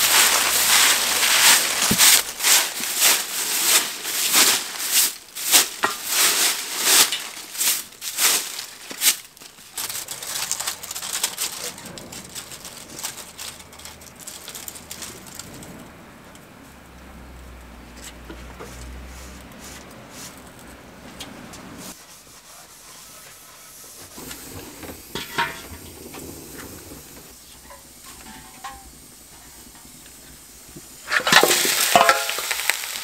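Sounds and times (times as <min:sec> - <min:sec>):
broom sweeping leaves on concrete: 0:00.0 - 0:15.4, 0:18.4 - 0:20.7, 0:21.7 - 0:33.0
leaves rustling: 0:00.0 - 0:16.3, 0:24.0 - 0:33.0.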